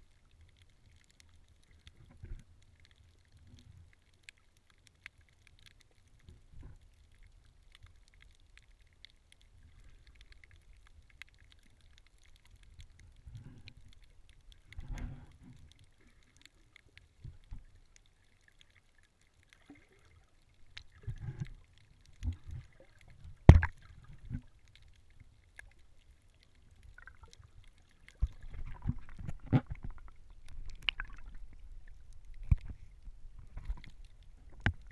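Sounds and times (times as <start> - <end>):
muffled underwater rumble: 11.5 - 16.3, 19.7 - 34.9
underwater knocks and clicks: 20.7 - 24.9, 28.0 - 34.9.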